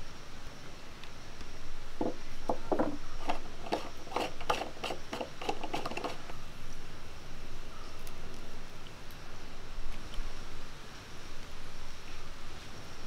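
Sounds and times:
small clicks and scrapes: 0:02.7 - 0:06.4.

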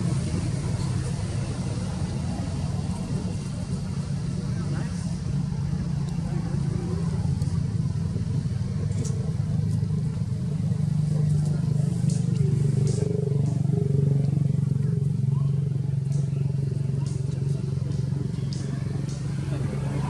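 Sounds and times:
low engine hum: 0:00.0 - 0:20.0
faint clicks: 0:16.0 - 0:19.6.

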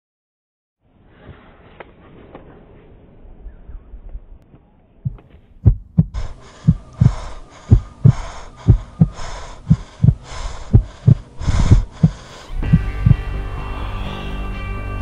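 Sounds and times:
heartbeat thumps: 0:05.1 - 0:13.2.

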